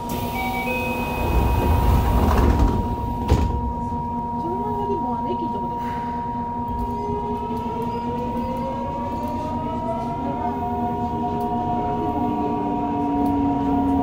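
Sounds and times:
wheels rumbling on rails: 0:00.0 - 0:05.8, 0:06.6 - 0:14.0.

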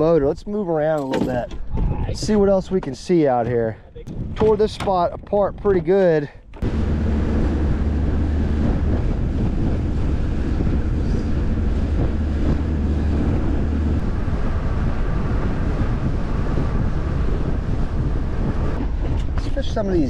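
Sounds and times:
water noise: 0:00.0 - 0:20.0
wind rushing over microphone: 0:00.0 - 0:20.0
outboard motor drone: 0:06.4 - 0:20.0.

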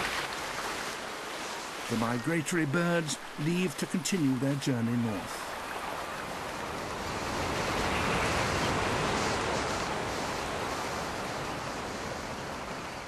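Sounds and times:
water splashing: 0:00.0 - 0:06.5.

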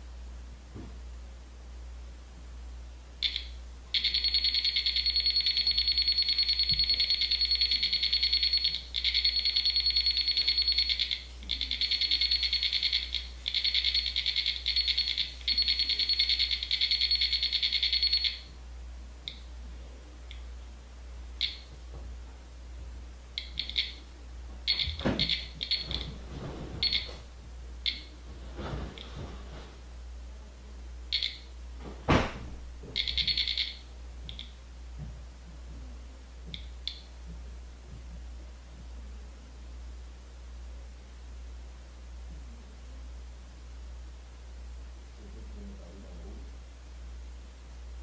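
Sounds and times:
rapidly pulsing alarm beep: 0:03.2 - 0:18.5, 0:21.4 - 0:21.6, 0:23.4 - 0:24.0, 0:24.7 - 0:26.2, 0:26.8 - 0:27.2, 0:31.1 - 0:31.4, 0:33.0 - 0:34.5
short beeps: 0:03.2 - 0:18.5, 0:24.7 - 0:26.1, 0:26.8 - 0:27.2, 0:33.0 - 0:34.5.

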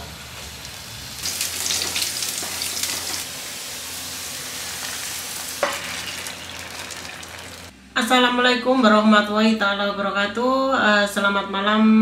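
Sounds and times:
garlic sizzling in hot oil: 0:00.1 - 0:07.7.

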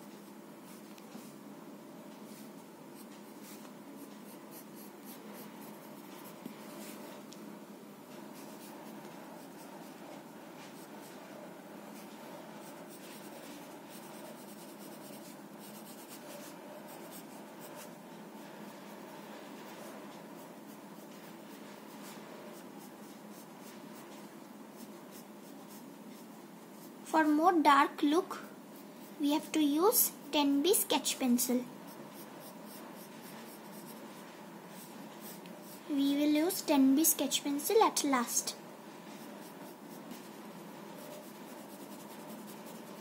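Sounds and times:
faint room hum: 0:00.0 - 0:43.0
pencil scratching on paper: 0:02.3 - 0:07.2, 0:08.2 - 0:27.4, 0:31.8 - 0:36.6, 0:39.0 - 0:43.0.

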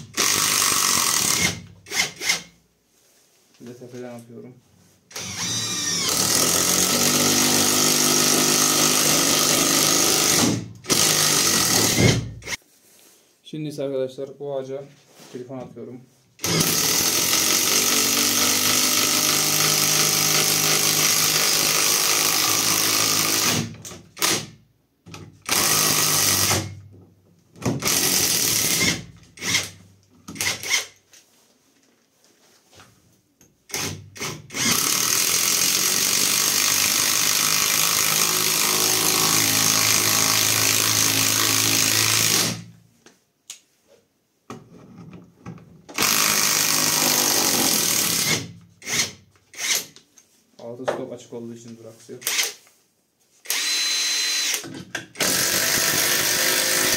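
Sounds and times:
impact wrench hammering screw: 0:00.0 - 0:02.5, 0:05.1 - 0:12.6, 0:16.4 - 0:26.8, 0:27.6 - 0:31.0, 0:33.7 - 0:42.7, 0:45.9 - 0:50.0, 0:53.5 - 0:56.9.

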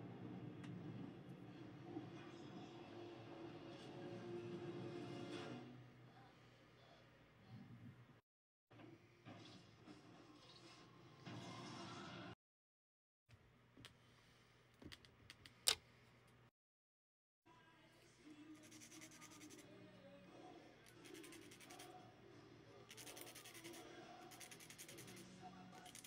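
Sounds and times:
nail file rasping on plastic: 0:22.9 - 0:25.2.

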